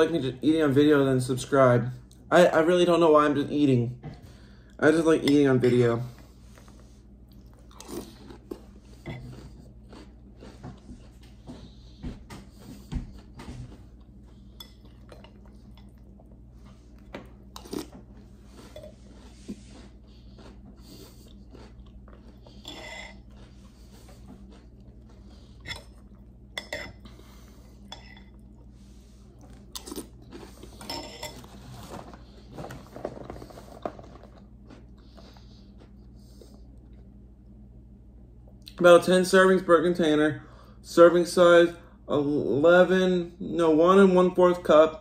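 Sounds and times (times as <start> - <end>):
chewing crunchy cereal: 6.5 - 12.0, 12.6 - 37.2.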